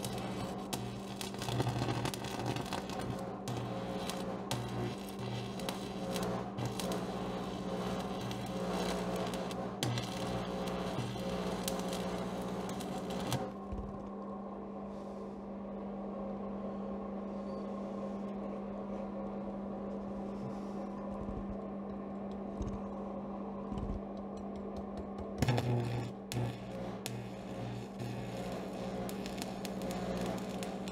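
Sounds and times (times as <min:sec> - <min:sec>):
arc welding crackling: 0:00.0 - 0:13.6, 0:25.4 - 0:30.9
welding machine humming: 0:00.0 - 0:14.0, 0:25.2 - 0:30.9.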